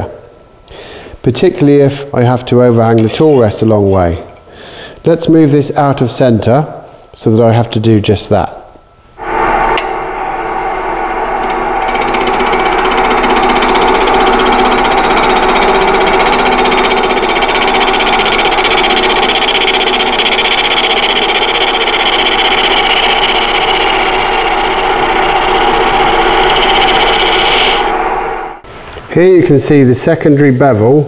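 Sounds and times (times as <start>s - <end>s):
wood lathe running: 9.8s - 28.7s
gouge cutting spinning wood: 10.4s - 28.6s.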